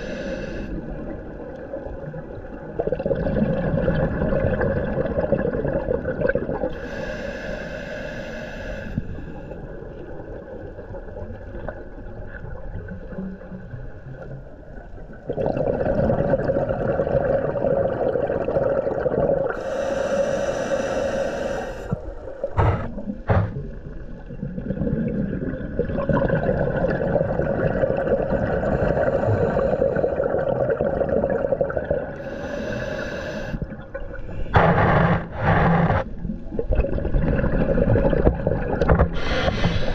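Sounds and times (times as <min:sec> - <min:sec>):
diver breathing through regulator: 0:00.0 - 0:00.9, 0:06.7 - 0:09.6, 0:19.5 - 0:23.7, 0:28.6 - 0:30.4, 0:32.2 - 0:36.0, 0:39.1 - 0:39.9
short knocks: 0:22.6 - 0:23.6.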